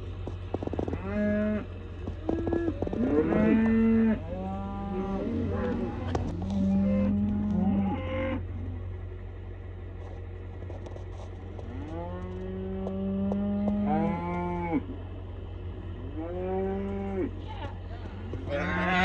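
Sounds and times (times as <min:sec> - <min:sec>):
cattle mooing: 0:00.8 - 0:08.7, 0:11.6 - 0:15.0, 0:15.9 - 0:19.0.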